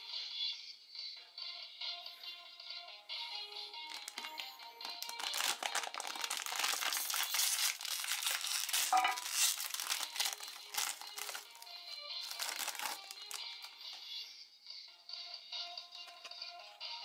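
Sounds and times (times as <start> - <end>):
background music: 0.0 - 17.0
foil bag crinkling: 3.9 - 13.8.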